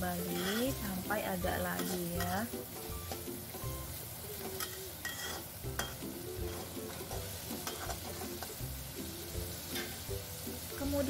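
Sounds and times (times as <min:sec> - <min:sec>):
vegetables sizzling in hot oil: 0:00.0 - 0:11.0
metal spatula scraping pan: 0:00.1 - 0:03.2, 0:04.4 - 0:08.6, 0:09.6 - 0:10.1.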